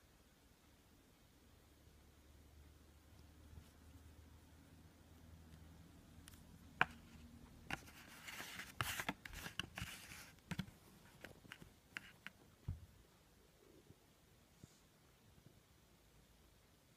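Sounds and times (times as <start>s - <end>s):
hand rustling cardboard package: 6.3s - 12.3s.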